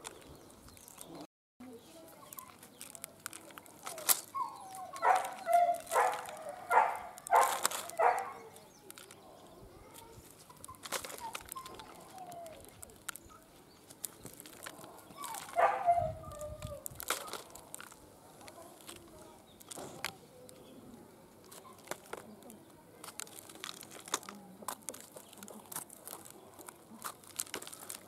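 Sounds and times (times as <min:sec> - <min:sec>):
baked mud cracking and crumbling: 0:00.0 - 0:01.3, 0:01.9 - 0:28.0
bird calling: 0:04.0 - 0:09.4, 0:10.4 - 0:13.6.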